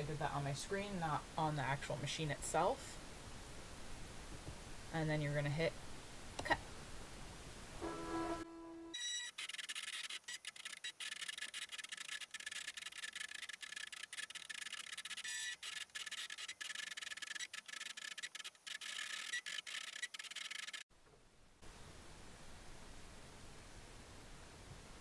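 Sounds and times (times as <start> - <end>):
cutting machine motors whirring: 9.0 - 20.8.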